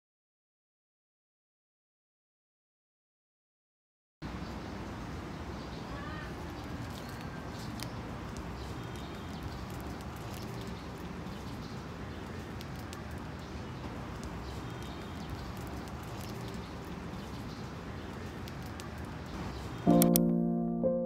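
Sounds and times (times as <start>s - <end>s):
small ticks: 12.2s - 13.4s, 18.1s - 19.2s.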